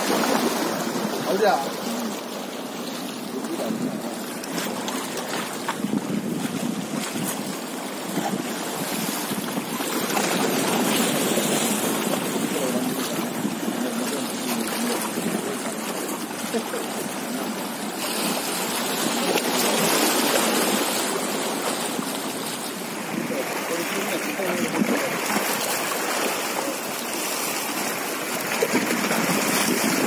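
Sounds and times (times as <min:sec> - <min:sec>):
sea waves washing against rocks: 0:00.0 - 0:30.0
wind buffeting microphone: 0:03.3 - 0:17.2.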